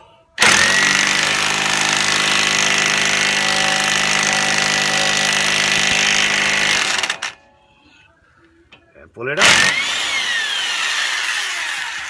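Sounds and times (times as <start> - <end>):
impact wrench running: 0.4 - 7.4, 9.4 - 12.0.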